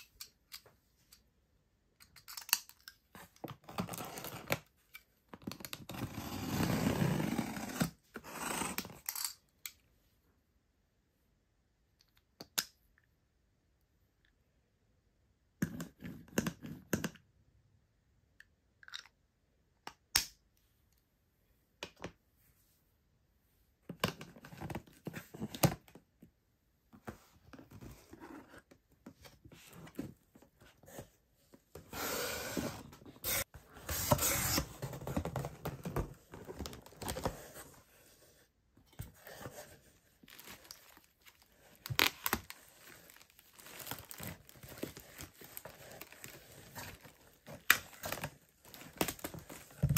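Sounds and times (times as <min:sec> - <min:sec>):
cardboard and paper rustling: 0:27.0 - 0:38.4, 0:39.0 - 0:49.9
plastic wrapping crinkling: 0:40.2 - 0:49.7.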